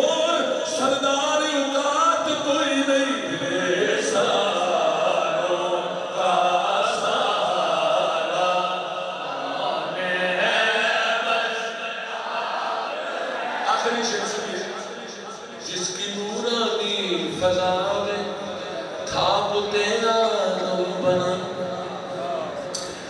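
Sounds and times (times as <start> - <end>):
man chanting devotional poem: 0.0 - 12.1, 13.4 - 22.8.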